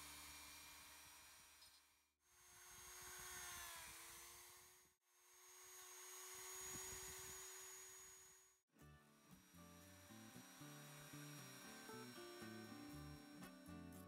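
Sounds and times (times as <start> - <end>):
rotary tool whining into wood: 0.0 - 14.0.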